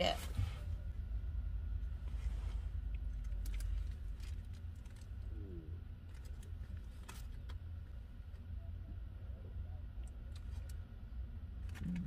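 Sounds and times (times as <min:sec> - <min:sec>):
low rumble inside car: 0:00.0 - 0:12.0
burger wrapper crinkling: 0:02.9 - 0:05.3, 0:06.0 - 0:07.6
low coo-like sound: 0:05.2 - 0:05.9, 0:11.6 - 0:12.0.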